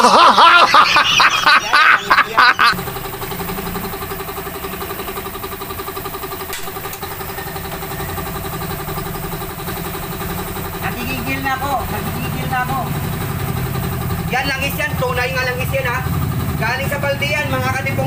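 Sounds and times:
small engine idling: 0.1 - 18.0.

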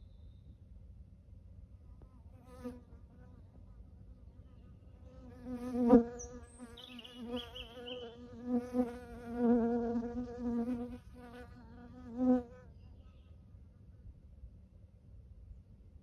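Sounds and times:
flying insect buzzing: 5.1 - 12.6.

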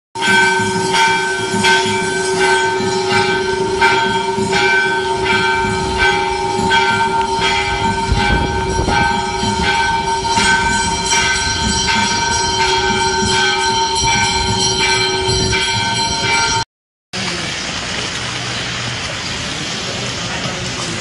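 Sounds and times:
rushing floodwater: 0.2 - 16.6, 17.2 - 21.0
temple bell ringing: 0.2 - 16.6.

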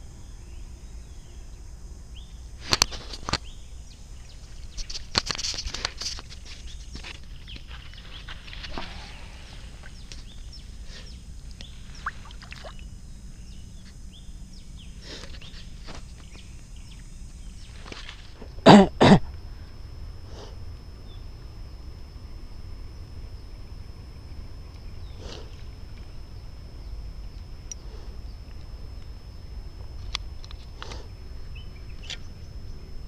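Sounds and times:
faint chirps and clicks: 1.2 - 18.3, 23.1 - 32.6
person coughing: 18.6 - 19.3.

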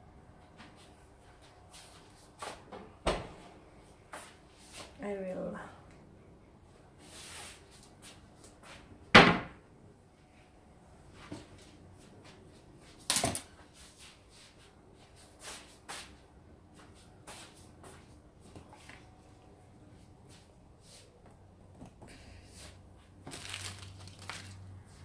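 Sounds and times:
cupboard doors banging shut: 9.1 - 9.6.

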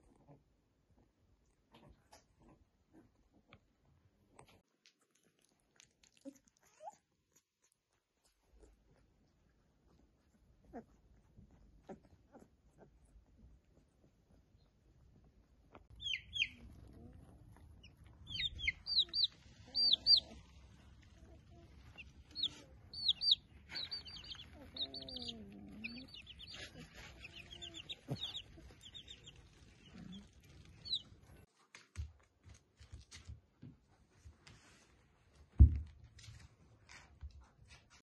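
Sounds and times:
puppies squeaking: 15.9 - 31.5.

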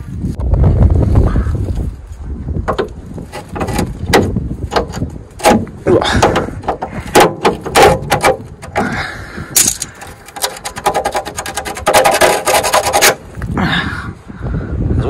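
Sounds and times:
hammer knocking on metal bolt: 3.6 - 8.8, 10.3 - 13.2.

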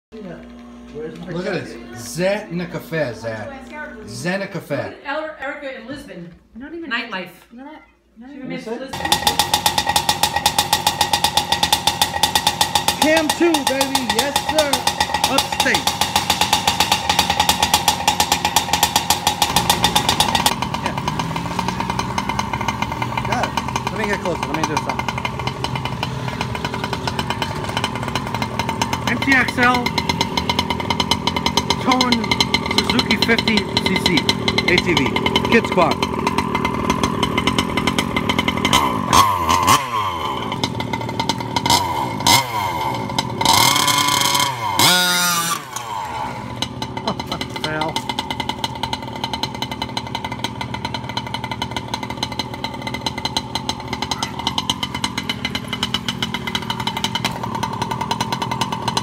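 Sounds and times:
electric motor whining: 0.2 - 4.2
small engine idling: 0.2 - 5.0, 8.9 - 59.0.

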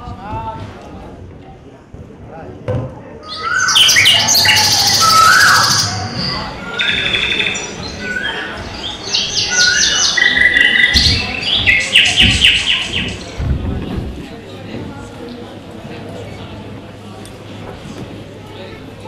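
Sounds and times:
birds chirping and trilling: 3.2 - 13.4.

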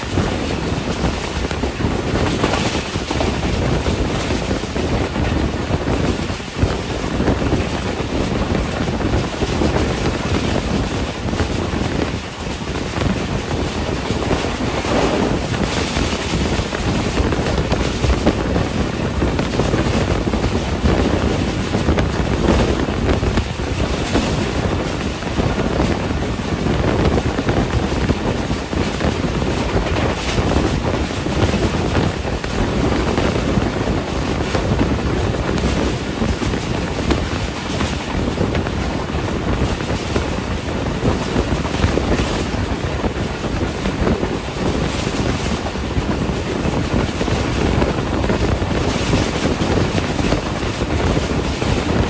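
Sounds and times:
train wheels rumbling on rails: 0.0 - 52.0
wind buffeting microphone: 0.0 - 52.0.

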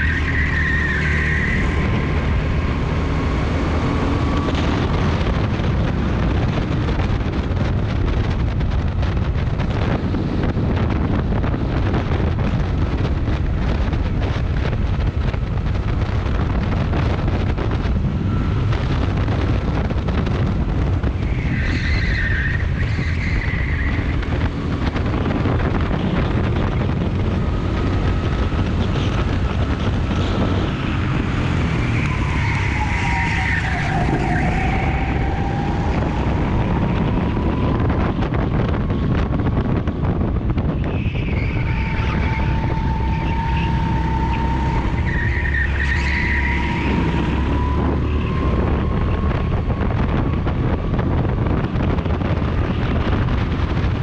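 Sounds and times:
go-kart engine running: 0.0 - 54.0
wind on microphone: 0.0 - 54.0
high squeal: 21.2 - 24.2, 30.4 - 38.3, 40.8 - 49.8.

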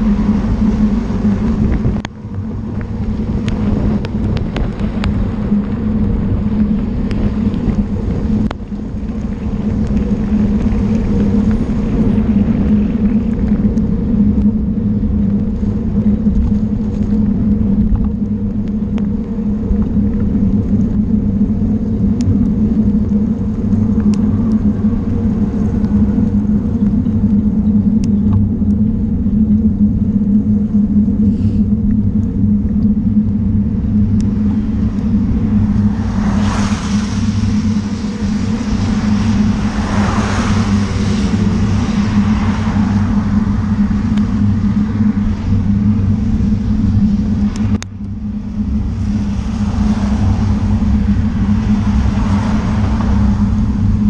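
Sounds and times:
car tyres hissing on wet road: 0.0 - 1.8, 31.2 - 31.7, 34.4 - 47.6, 48.4 - 54.0
wind and road noise rumble: 0.0 - 54.0.

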